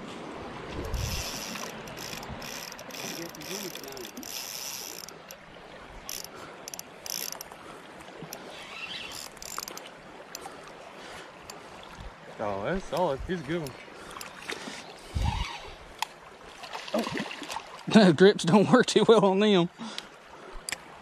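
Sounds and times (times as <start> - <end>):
fishing reel clicking: 0.8 - 5.4, 6.1 - 7.5, 8.3 - 9.8.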